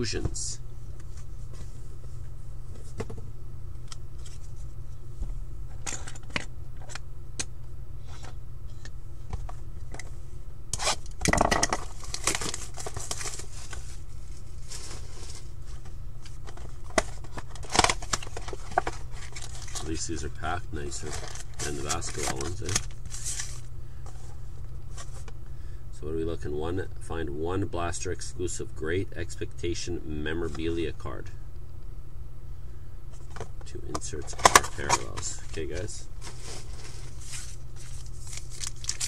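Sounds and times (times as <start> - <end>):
low steady hum: 0.0 - 39.0
plastic wrap tearing and crinkling: 11.8 - 13.9, 17.5 - 19.9, 34.7 - 39.0.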